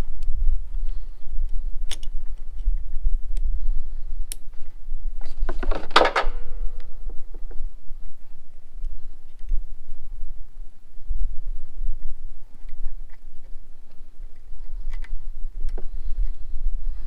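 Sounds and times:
low rumble on microphone: 0.0 - 17.0
pliers and hose clamps clicking: 1.8 - 3.5, 14.3 - 16.4.

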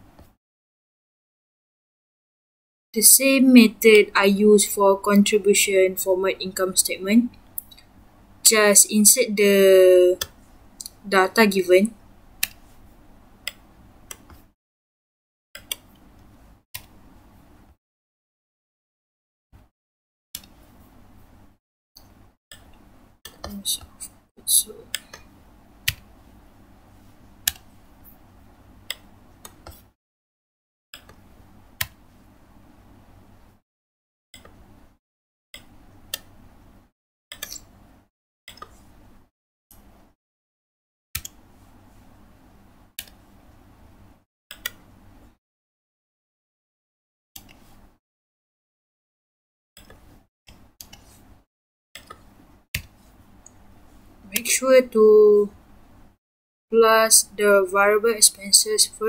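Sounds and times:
low background hum and hiss: 3.0 - 14.3
faint room hum: 3.0 - 14.5, 15.7 - 17.8, 20.4 - 29.9, 31.0 - 33.6, 34.4 - 35.0, 35.6 - 40.2, 41.2 - 45.4, 52.0 - 56.2
keyboard and mouse clicks: 12.4 - 12.7, 13.5 - 14.5, 15.6 - 17.0, 27.5 - 27.7, 28.9 - 29.9, 31.0 - 31.2, 37.3 - 37.8, 38.5 - 38.8, 41.2 - 41.4, 44.5 - 44.8, 49.8 - 51.1, 52.0 - 53.6.

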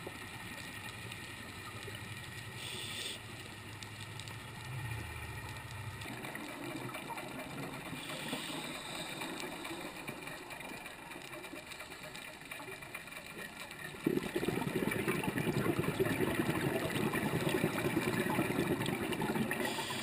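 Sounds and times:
fine crackle: 0.0 - 20.0
steady low underwater hum: 0.0 - 20.0
bubbly noise: 13.9 - 20.0.

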